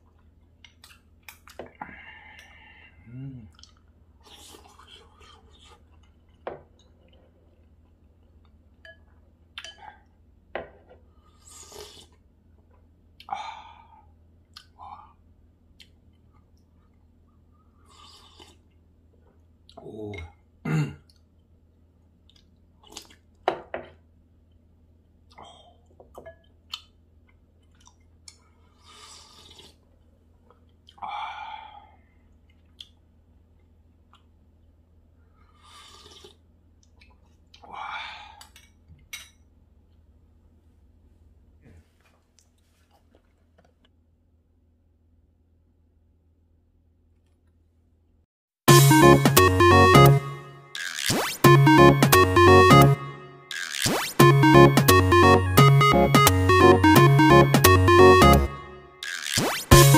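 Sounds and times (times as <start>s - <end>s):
chewing: 3.5s - 8.6s, 18.0s - 18.8s, 22.2s - 23.3s, 26.7s - 28.4s
slurping broth: 4.2s - 5.8s, 11.4s - 12.2s, 17.9s - 18.6s, 28.8s - 29.8s, 35.6s - 36.4s.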